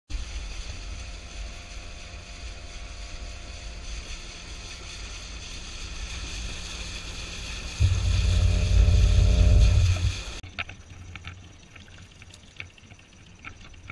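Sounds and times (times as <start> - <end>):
outboard motor running: 0.3 - 10.5
wind rumbling on microphone: 2.3 - 10.4.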